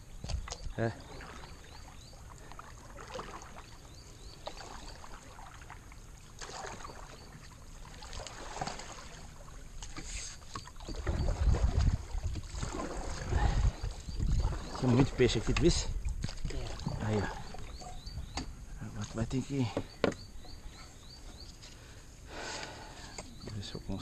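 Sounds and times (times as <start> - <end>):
paddle splashes: 0.2 - 20.2
low rumbling on microphone: 11.0 - 18.8
knocks against canoe hull: 19.7 - 20.3.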